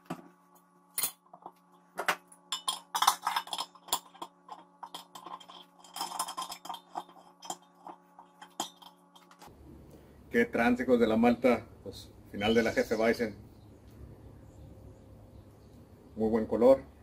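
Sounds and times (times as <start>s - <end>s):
steady low hum: 0.0s - 17.0s
metal fittings clinking on kettle lid: 2.5s - 7.6s, 8.4s - 9.4s.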